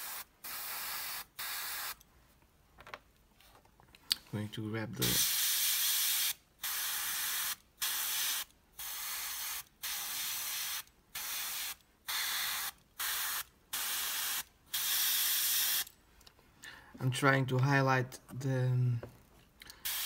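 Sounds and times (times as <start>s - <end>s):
airbrush spraying hiss: 0.0s - 2.0s, 5.0s - 15.9s.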